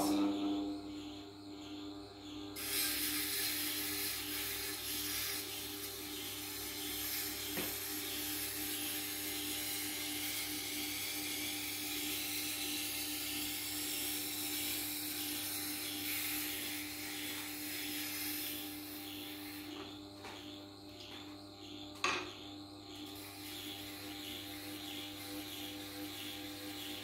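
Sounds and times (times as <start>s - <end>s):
knife rubbing on honing wheel: 2.6s - 19.7s, 23.1s - 27.0s
sharpening machine motor hum: 2.6s - 19.9s, 23.0s - 27.0s.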